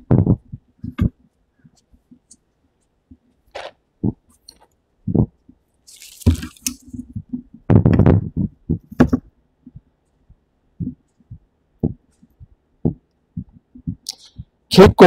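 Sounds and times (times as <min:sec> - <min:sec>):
microphone handling noise: 0:00.0 - 0:01.2, 0:06.2 - 0:09.9.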